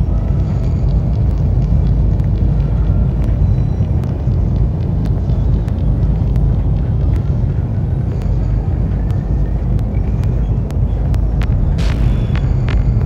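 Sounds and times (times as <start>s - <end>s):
excavator deep rumble: 0.0s - 13.0s.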